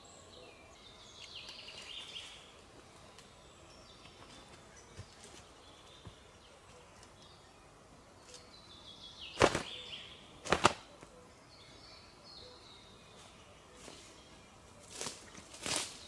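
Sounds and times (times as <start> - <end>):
bird singing faintly: 0.0 - 16.0
quiet forest background: 0.0 - 16.0
sharp wooden impacts: 9.4 - 9.8, 10.4 - 10.8.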